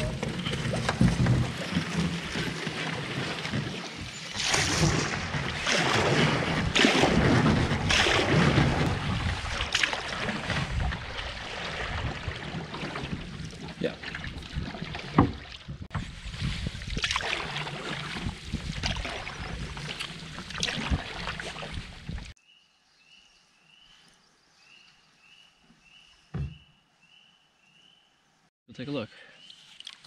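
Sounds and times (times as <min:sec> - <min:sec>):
paddle strokes splashing: 0:00.0 - 0:22.3
low thump: 0:26.3 - 0:26.6.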